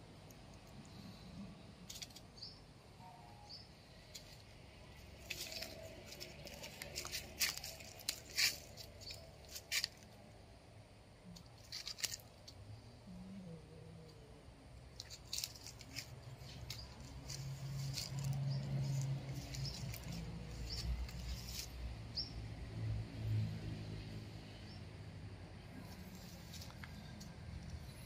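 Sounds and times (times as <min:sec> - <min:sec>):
dry leaves and twigs crackling: 0:01.9 - 0:02.3, 0:04.0 - 0:10.4, 0:11.2 - 0:12.6, 0:14.9 - 0:21.9, 0:25.8 - 0:28.0.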